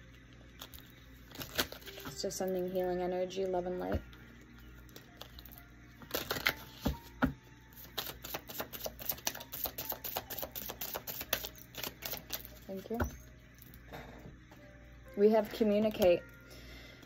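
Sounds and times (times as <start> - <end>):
faint background music: 0.0 - 17.0
cards shuffling clicks: 6.0 - 7.2, 7.8 - 12.6.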